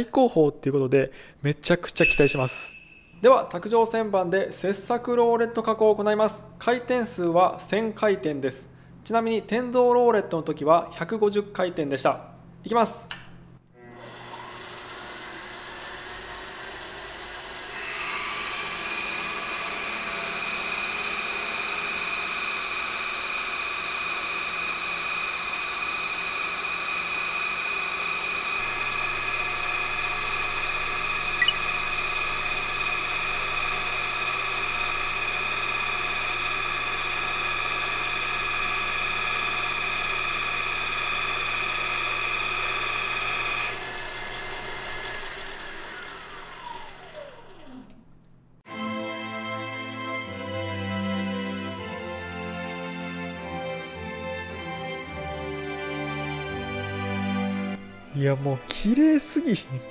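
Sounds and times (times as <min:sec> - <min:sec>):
knurl tool high-pitched whine: 0:13.8 - 0:47.5
lathe motor hum: 0:13.8 - 0:47.9.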